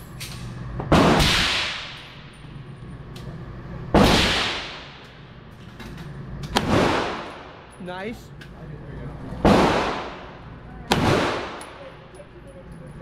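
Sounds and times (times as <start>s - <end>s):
handgun shots echoing indoors: 0.2s - 2.3s, 4.0s - 5.1s.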